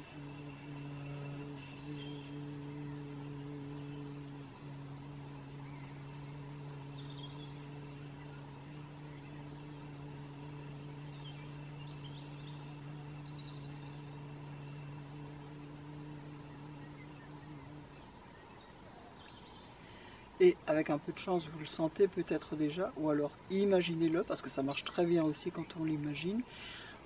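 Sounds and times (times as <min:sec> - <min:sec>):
woman humming low tone: 0:00.0 - 0:19.2
faint bird chirps: 0:05.3 - 0:15.2, 0:16.4 - 0:20.3.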